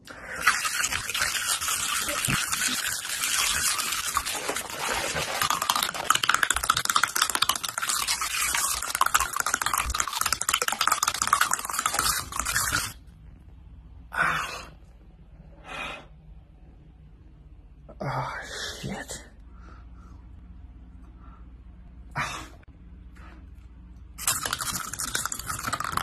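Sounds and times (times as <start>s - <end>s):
crunching of raw vegetables chewed: 0.4s - 13.0s.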